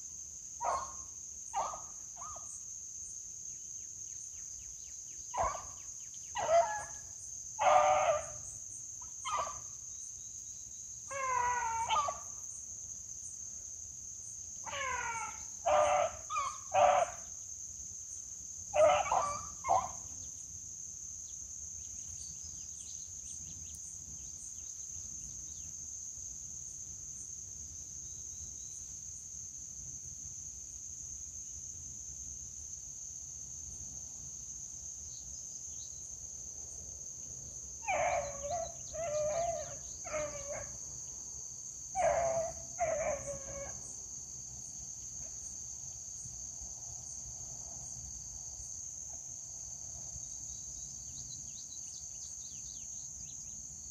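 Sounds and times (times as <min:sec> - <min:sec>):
high insect chorus: 0:00.0 - 0:53.9
dogs baying and yelping: 0:05.4 - 0:05.7, 0:06.4 - 0:07.0, 0:07.6 - 0:08.4, 0:09.2 - 0:09.6, 0:11.1 - 0:12.2, 0:14.7 - 0:17.2, 0:18.8 - 0:20.0, 0:37.8 - 0:40.7, 0:42.0 - 0:43.8.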